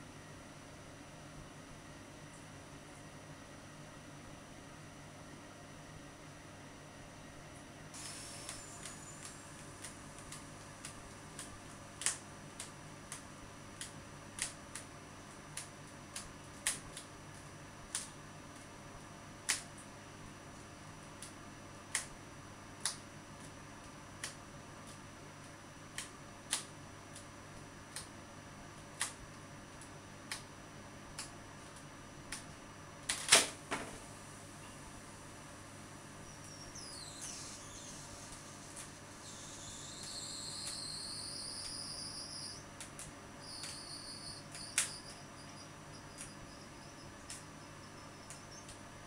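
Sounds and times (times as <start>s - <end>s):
faint steady hum: 0.0s - 49.0s
sharp clicks: 42.8s - 45.3s, 46.1s - 46.4s.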